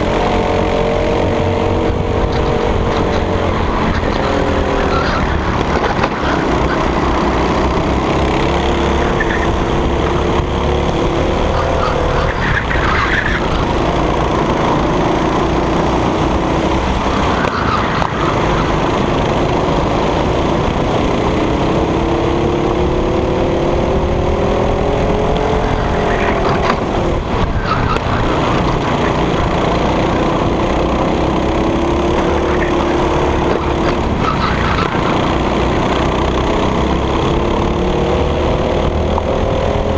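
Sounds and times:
low rumble of wind and vibration: 0.0s - 17.8s
kart engine revving: 0.0s - 39.9s.

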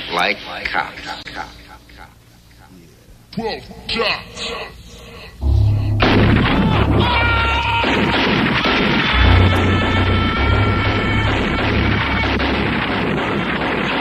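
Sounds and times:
held high-pitched tone: 5.4s - 8.2s, 9.1s - 12.6s
deep bass notes: 5.4s - 13.3s
dense crashing noise: 5.4s - 14.0s.

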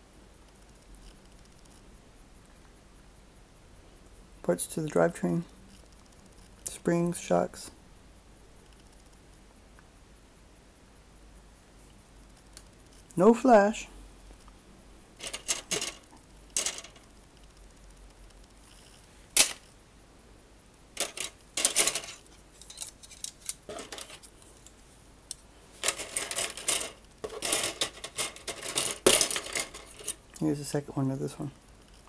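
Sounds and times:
plastic parts clicking and rustling: 15.2s - 17.1s, 19.4s - 19.7s, 21.0s - 30.4s.

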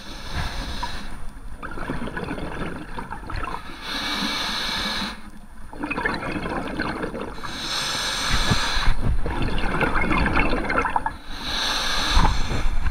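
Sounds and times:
regulator hiss of inhalation: 0.0s - 1.2s, 3.7s - 5.3s, 7.4s - 9.0s, 11.2s - 12.9s
bubbles gurgling underwater: 1.6s - 3.6s, 5.7s - 7.5s, 8.4s - 11.2s.

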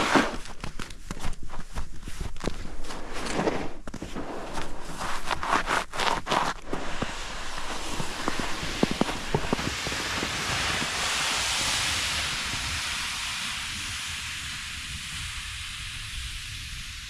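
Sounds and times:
footsteps crunching in snow: 0.0s - 11.2s
sled hissing over snow: 6.4s - 17.0s.

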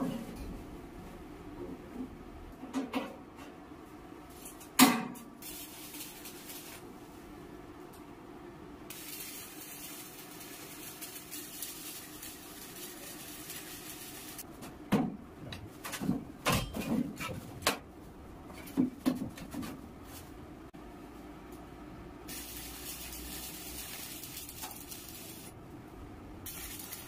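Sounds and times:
welding sizzling hiss: 5.4s - 7.2s, 8.9s - 14.5s, 22.3s - 25.6s, 26.4s - 27.0s.

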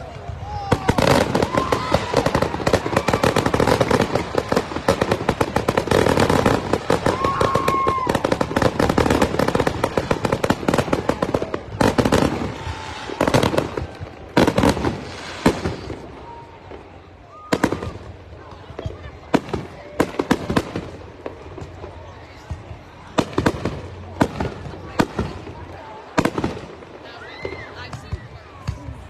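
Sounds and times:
fireworks exploding and crackling: 0.0s - 29.0s
loud firework bangs: 0.2s - 18.2s.

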